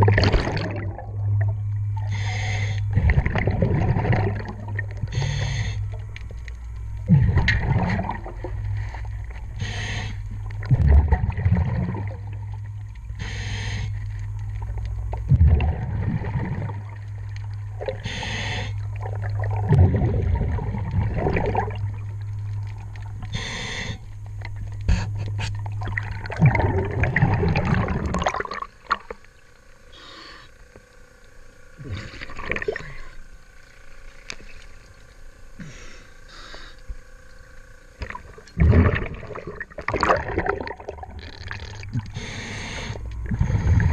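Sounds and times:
regulator bubbling exhalation: 0:00.0 - 0:01.3, 0:02.0 - 0:06.0, 0:07.0 - 0:08.5, 0:09.5 - 0:12.3, 0:17.8 - 0:21.9, 0:24.8 - 0:29.2, 0:31.8 - 0:33.2, 0:38.0 - 0:43.9
water splashing: 0:00.0 - 0:01.5, 0:18.9 - 0:23.3, 0:25.4 - 0:29.3, 0:31.8 - 0:34.9, 0:38.0 - 0:42.2
low underwater hum: 0:00.0 - 0:43.9.

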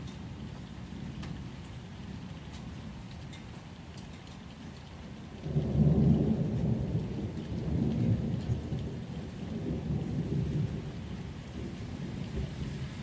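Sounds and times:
rain: 0:00.0 - 0:13.0
thunder rumbling: 0:05.4 - 0:13.0.

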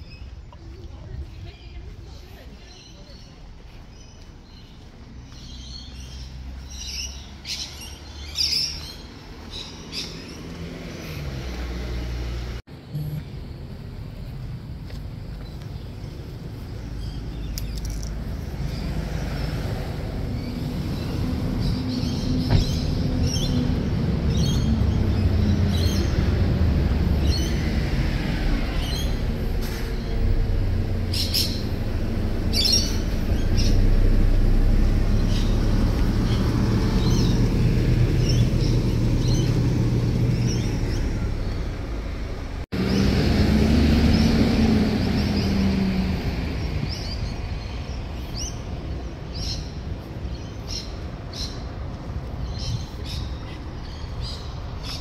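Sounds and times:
birds chirping: 0:00.0 - 0:55.0
low mechanical rumble: 0:19.9 - 0:55.0.

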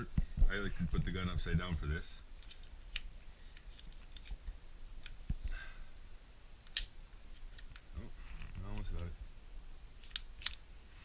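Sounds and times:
small metallic clicks of pistol parts: 0:02.4 - 0:05.2, 0:10.0 - 0:10.6.

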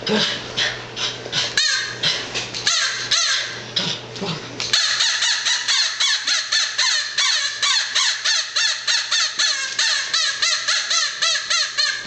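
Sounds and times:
squeaky toy squawking chirps: 0:04.8 - 0:12.0.

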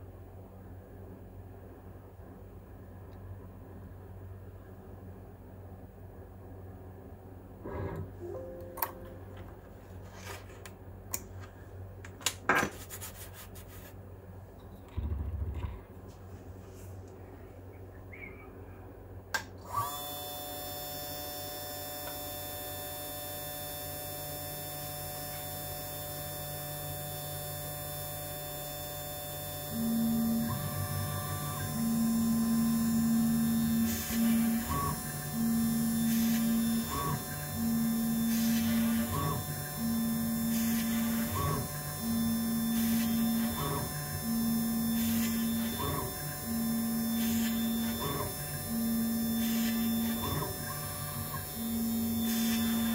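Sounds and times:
spindle motor whine: 0:19.6 - 0:52.9
stepper motors humming: 0:29.7 - 0:52.9.

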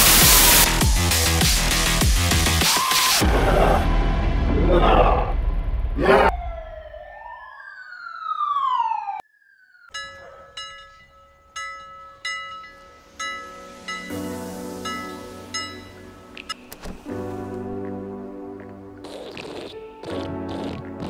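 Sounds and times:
falling siren-like pitch glides: 0:06.0 - 0:11.5.

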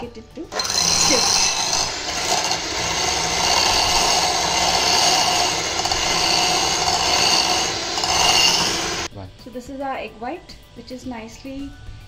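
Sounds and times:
electric hand mixer whisking: 0:00.5 - 0:09.1.

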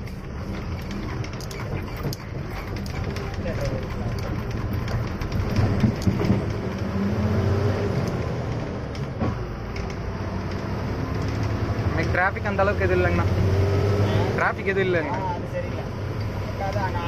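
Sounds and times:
light clicks and rattles: 0:00.0 - 0:07.0
bus engine droning: 0:00.0 - 0:17.0.

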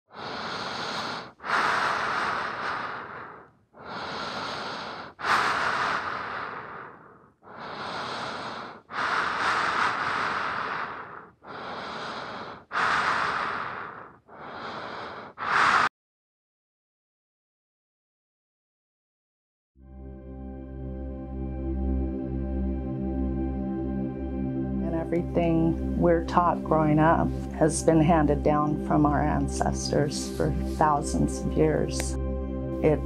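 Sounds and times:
deep human breathing: 0:00.1 - 0:15.9, 0:28.9 - 0:33.0.

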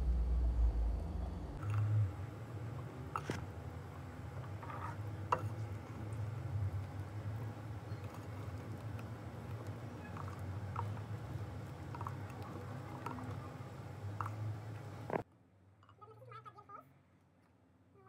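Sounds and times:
low hum: 0:00.0 - 0:15.2
whisk stirring batter in bowl: 0:03.0 - 0:15.1.

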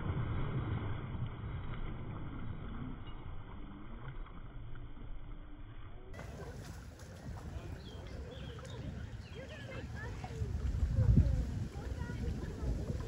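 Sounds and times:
dogs splashing through water: 0:06.1 - 0:13.0.

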